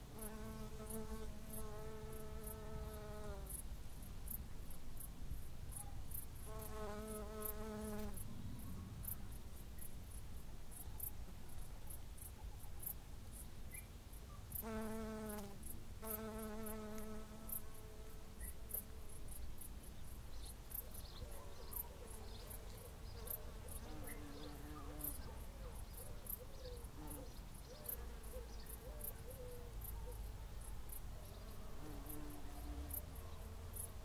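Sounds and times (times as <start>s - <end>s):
low rumble of wind: 8.1s - 14.5s.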